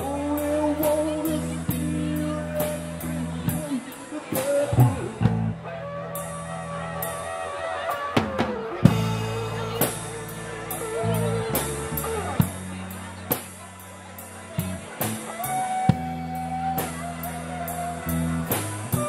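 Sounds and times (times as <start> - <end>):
electric guitar lead notes: 0.0 - 13.6
bass notes: 0.0 - 19.0
drum kit with cymbal strokes: 0.0 - 19.0.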